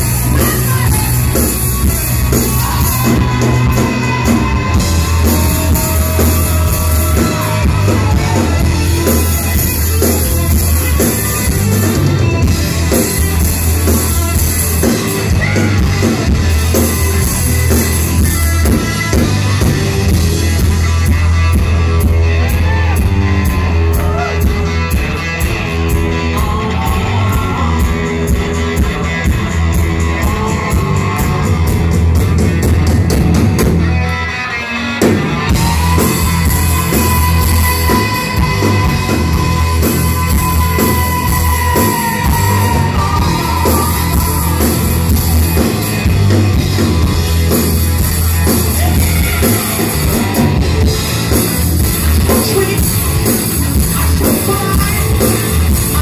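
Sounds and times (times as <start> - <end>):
person singing: 0.0 - 11.8, 25.9 - 31.6, 35.5 - 45.8, 48.4 - 50.2, 52.1 - 56.0
live rock band: 0.0 - 56.0.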